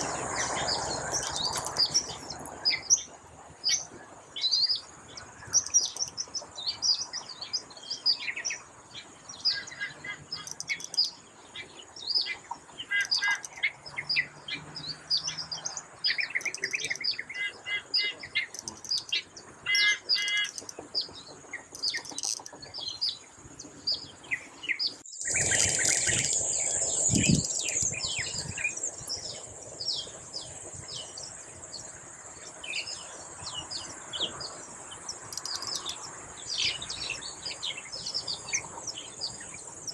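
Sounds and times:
birds chirping and trilling: 0.0 - 39.9.

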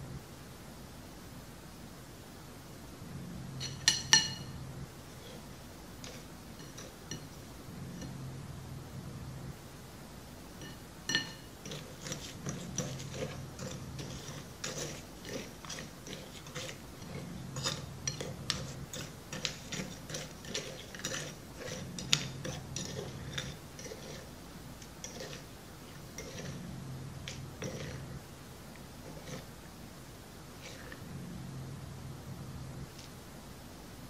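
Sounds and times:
metal spoon scraping a plate: 3.6 - 7.4, 10.6 - 24.3, 25.0 - 26.6, 27.3 - 28.1, 29.0 - 29.5.

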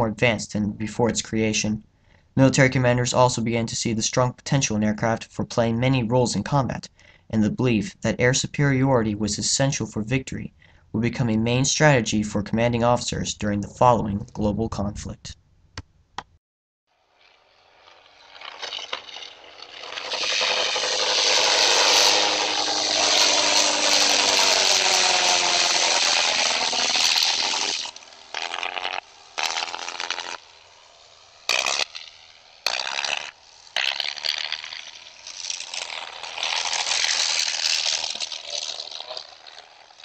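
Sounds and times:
propeller aircraft engine drone: 17.0 - 40.0.

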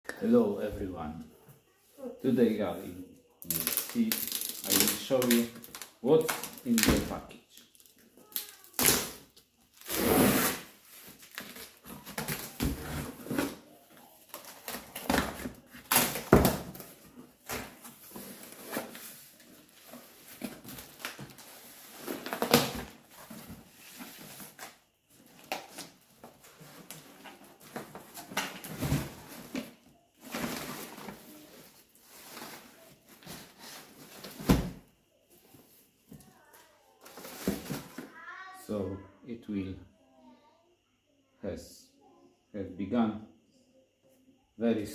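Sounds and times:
packing tape pulled off: 3.5 - 6.9, 8.2 - 9.2, 9.8 - 10.7.

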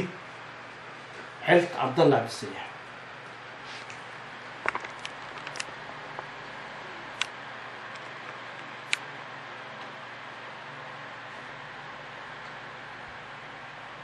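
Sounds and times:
steady room hiss: 0.0 - 14.0
paper handling clicks: 4.6 - 6.3.

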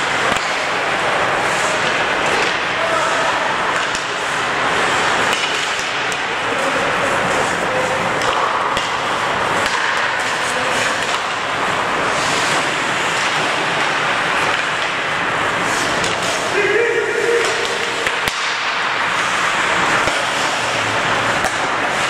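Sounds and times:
sharp clacks of sticks and puck: 0.0 - 22.0
skate blades scraping on ice: 0.1 - 16.6, 17.2 - 22.0.

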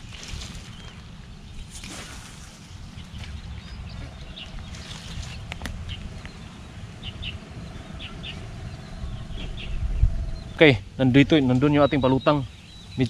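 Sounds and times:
faint steady hum: 0.0 - 13.0
steady low rumble: 0.0 - 13.0
bird chirps: 3.0 - 13.0.

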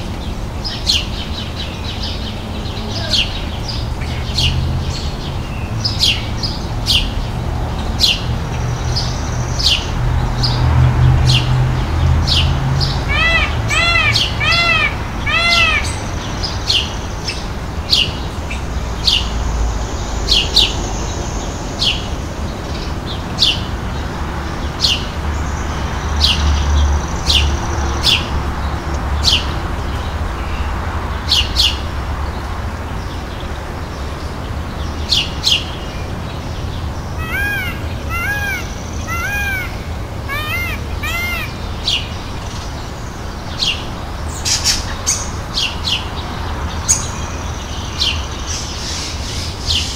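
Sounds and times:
birds chirping: 0.0 - 10.6, 11.3 - 49.9
peafowl calls: 13.0 - 16.1, 37.2 - 42.0.

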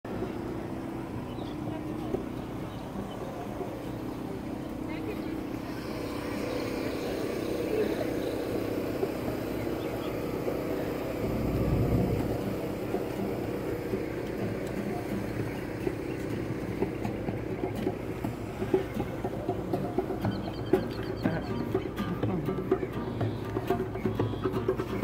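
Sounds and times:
engine hum: 0.0 - 25.0
low rumble: 9.9 - 20.0.

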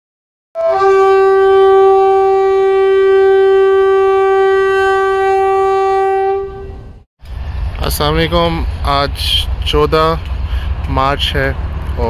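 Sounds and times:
horn-like blast: 0.6 - 7.0.

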